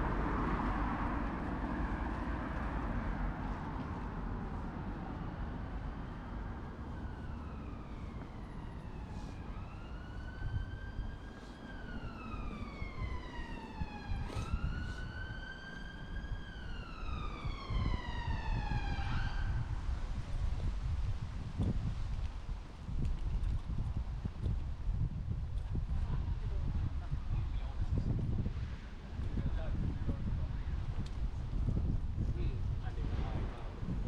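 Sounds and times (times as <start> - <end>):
emergency siren wailing: 0.0 - 20.5
street traffic rumble: 0.0 - 34.0.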